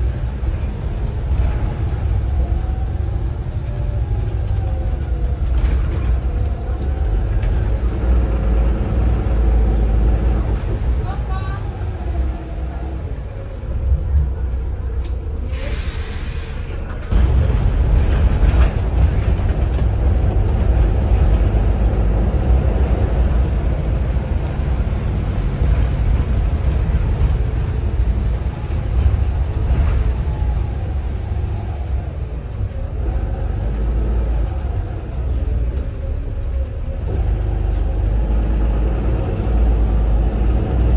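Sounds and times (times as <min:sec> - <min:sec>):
bus engine rumble: 0:00.0 - 0:40.9
air hiss: 0:15.5 - 0:16.8.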